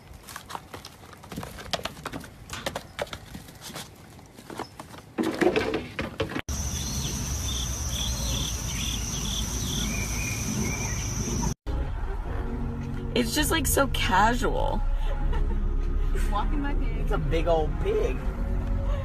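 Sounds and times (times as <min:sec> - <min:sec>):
hooves clicking on wood: 0:00.0 - 0:11.5.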